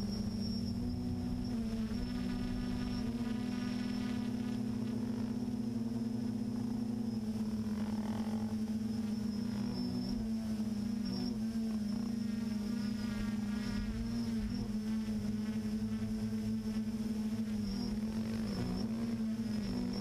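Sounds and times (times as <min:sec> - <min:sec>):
drone propellers buzzing: 0:00.0 - 0:20.0.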